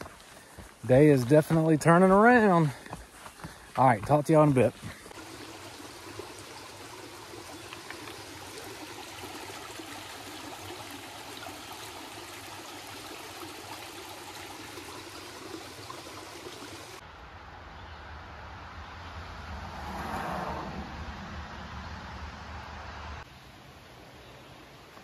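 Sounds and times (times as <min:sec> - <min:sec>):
creek water running over rocks: 0:00.0 - 0:17.0.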